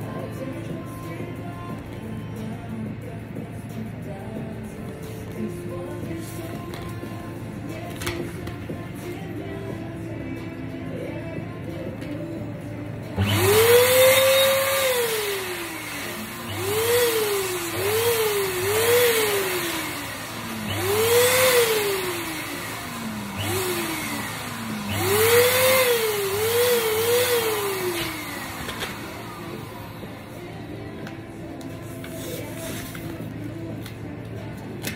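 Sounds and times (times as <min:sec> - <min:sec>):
balloon inflator motor whine: 0:13.1 - 0:30.7.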